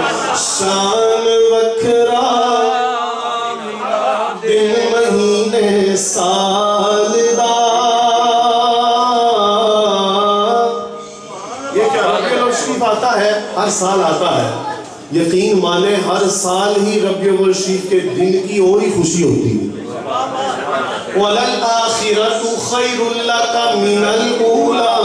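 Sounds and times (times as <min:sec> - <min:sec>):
man singing into a microphone: 0:00.0 - 0:11.2.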